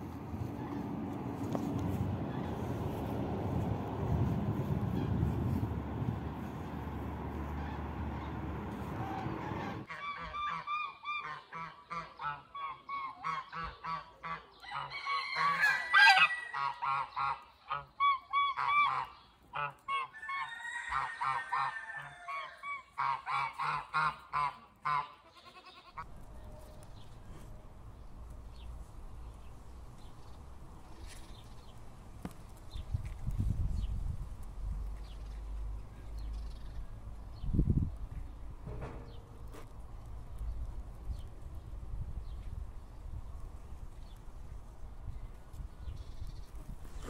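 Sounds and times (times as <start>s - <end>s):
swan honking calls: 7.3s - 20.1s.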